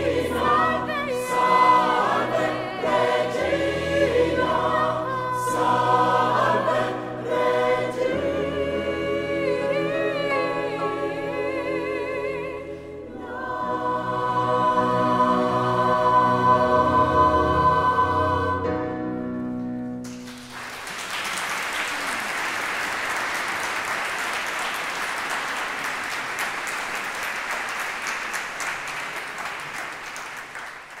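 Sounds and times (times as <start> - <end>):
mixed choir singing a chord: 0.0 - 19.5
audience applause: 20.0 - 31.0.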